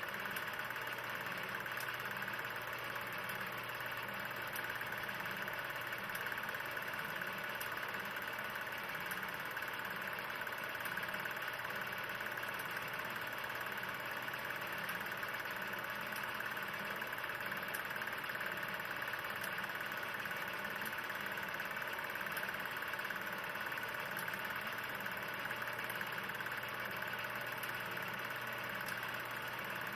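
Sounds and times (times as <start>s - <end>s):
film projector whirring: 0.0s - 29.9s.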